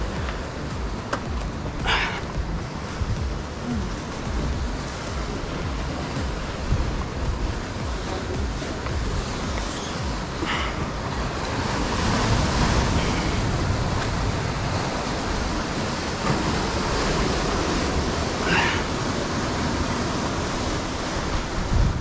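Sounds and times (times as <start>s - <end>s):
ocean surf on rocks: 0.0s - 22.0s
wind on microphone: 0.0s - 22.0s.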